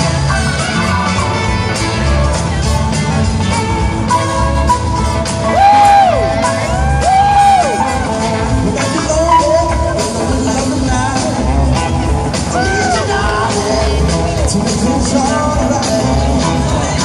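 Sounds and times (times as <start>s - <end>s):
live rock band playing: 0.0s - 17.0s
person singing: 5.4s - 17.0s.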